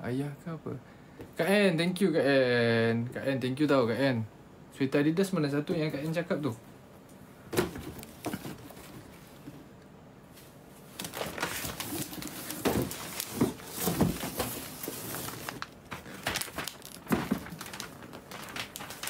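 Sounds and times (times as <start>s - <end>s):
gift packaging rustling: 10.9s - 19.0s.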